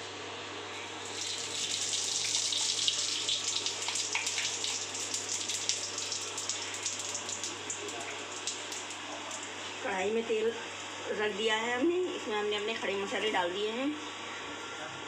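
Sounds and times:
spices sizzling in hot oil: 1.0 - 9.6.

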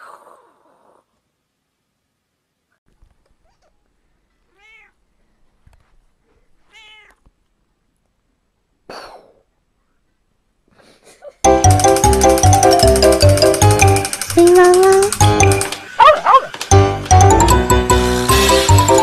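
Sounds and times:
cat meowing: 3.4 - 3.8, 4.5 - 5.0, 6.6 - 7.3
cat hissing: 6.6 - 7.2.

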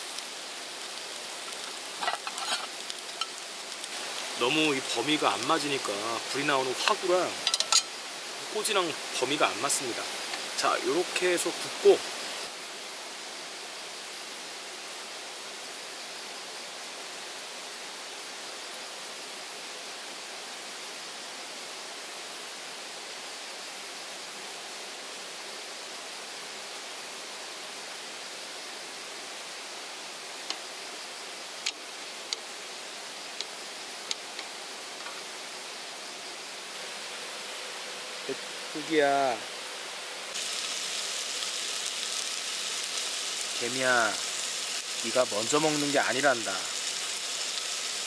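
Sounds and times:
skewers sizzling on a grill: 0.0 - 15.5, 25.2 - 48.0
high insect chirp: 0.0 - 48.0.

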